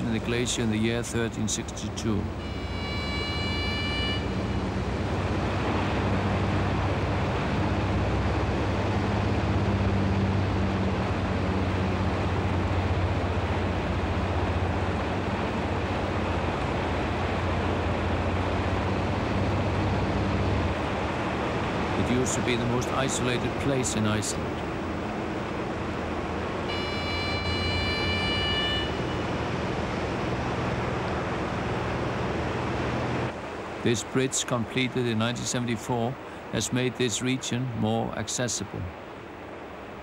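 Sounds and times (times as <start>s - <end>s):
propeller plane engine drone: 0.0s - 33.9s.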